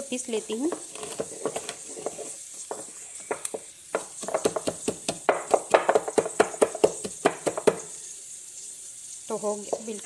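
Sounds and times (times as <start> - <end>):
wooden pestle pounding in mortar: 2.7 - 7.9.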